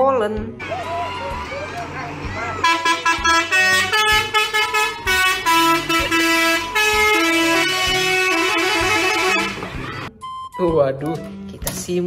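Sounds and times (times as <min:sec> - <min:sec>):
truck musical horn: 0:00.6 - 0:10.1.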